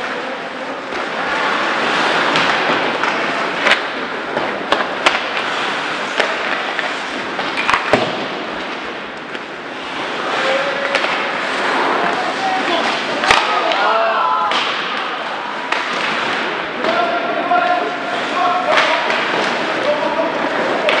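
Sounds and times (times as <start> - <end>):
hockey sticks and puck clacking: 0.0 - 21.0
skate blades hissing on ice: 1.2 - 8.9, 9.7 - 13.6.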